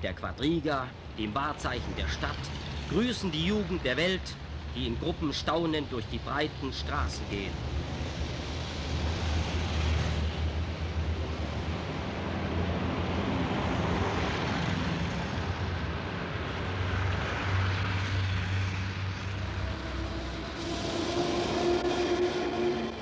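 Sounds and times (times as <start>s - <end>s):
street traffic rumble: 0.0s - 23.0s.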